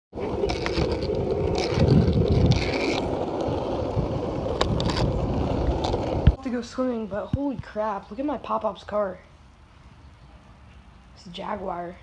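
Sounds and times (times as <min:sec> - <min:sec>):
skateboard wheels rolling on asphalt: 0:00.1 - 0:09.2.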